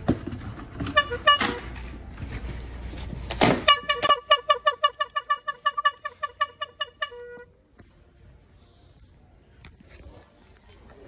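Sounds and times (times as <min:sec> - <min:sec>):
air horn blasts: 0:00.8 - 0:02.0, 0:03.4 - 0:07.6.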